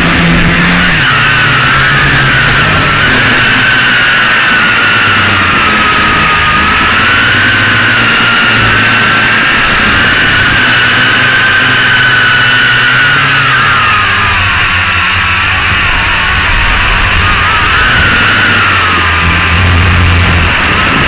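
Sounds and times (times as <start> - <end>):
model plane motor whine: 0.0 - 21.0
rushing air noise: 13.4 - 21.0.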